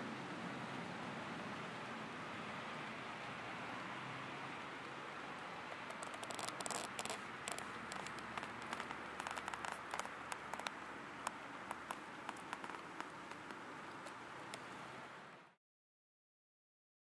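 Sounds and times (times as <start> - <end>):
steady hiss: 0.0 - 15.6
light clicks and taps: 5.7 - 14.8.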